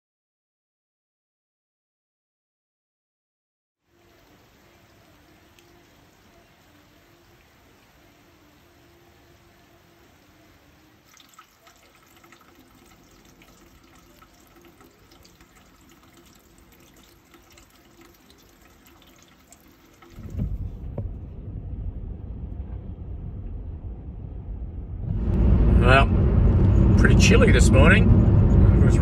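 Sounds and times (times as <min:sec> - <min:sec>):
drizzle pattering and dripping: 0:11.0 - 0:20.5
car cabin rumble: 0:20.2 - 0:29.0.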